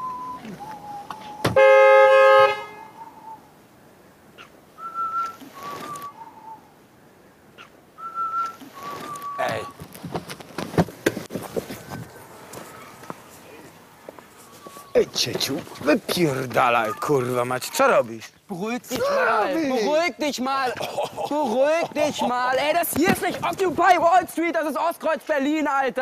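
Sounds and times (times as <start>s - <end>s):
man whistling a slow tune: 0.0s - 1.6s, 2.8s - 3.5s, 4.8s - 6.8s, 8.0s - 9.4s
car horn blast: 1.5s - 2.9s.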